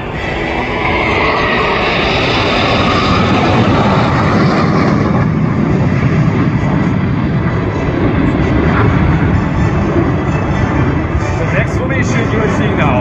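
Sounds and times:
jets flying past roaring: 0:00.0 - 0:13.0.

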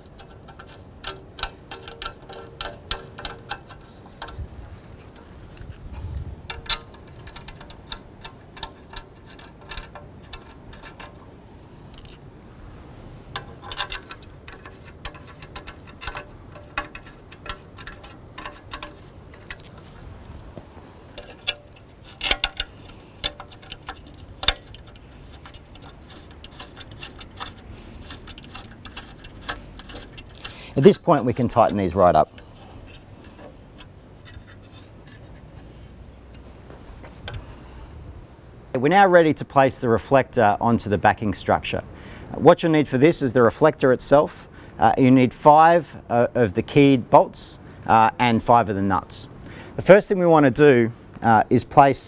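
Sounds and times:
small metallic clicks and taps: 0:00.0 - 0:04.4, 0:06.5 - 0:12.2, 0:13.3 - 0:30.7.

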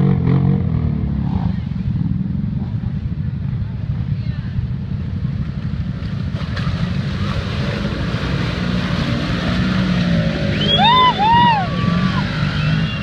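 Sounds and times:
engine running hard: 0:00.0 - 0:13.0.

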